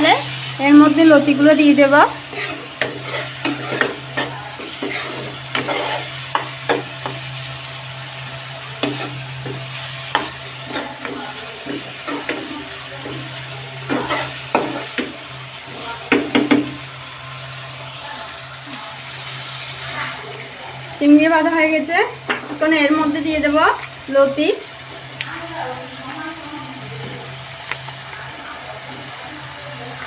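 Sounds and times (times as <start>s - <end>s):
prawns and onions sizzling: 0.0s - 30.0s
metal spoon scraping a pan: 0.2s - 7.4s, 8.6s - 15.1s.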